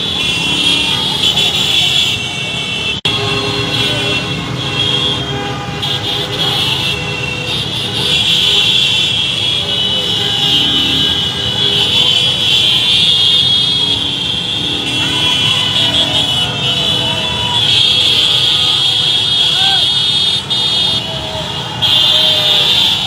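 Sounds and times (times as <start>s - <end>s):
vehicle engines running: 0.0s - 23.0s
crowd voices: 9.2s - 23.0s.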